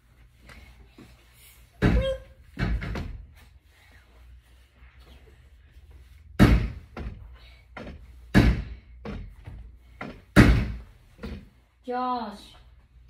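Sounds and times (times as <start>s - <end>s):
loud thuds: 6.4s - 11.5s.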